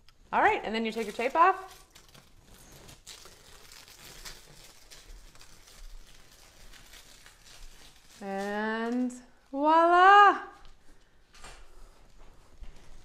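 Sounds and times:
tape peeling off a wall: 0:00.9 - 0:09.5.

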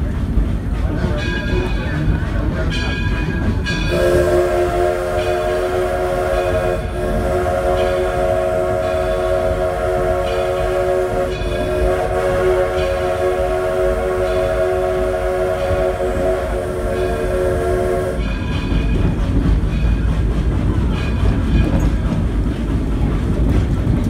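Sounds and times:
moving train rumble: 0:00.0 - 0:24.0
steam locomotive whistle: 0:03.9 - 0:18.3.

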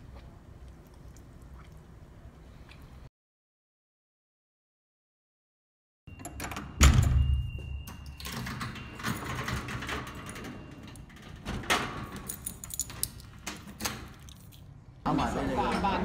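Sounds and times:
heavy door thump: 0:06.8 - 0:07.5.

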